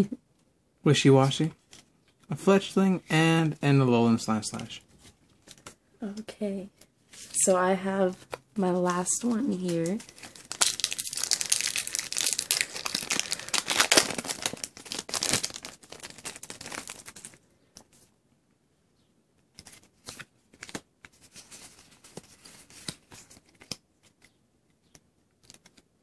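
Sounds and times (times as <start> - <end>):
cards clicking and rustling: 8.2 - 17.9, 19.4 - 25.9
foil pack tearing and crinkling: 10.1 - 17.4.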